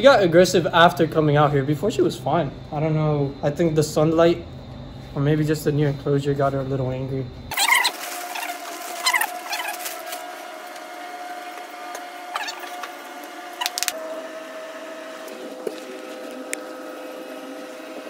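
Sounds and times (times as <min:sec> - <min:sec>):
rustling and scraping of peat: 0:07.5 - 0:14.0, 0:15.3 - 0:16.6.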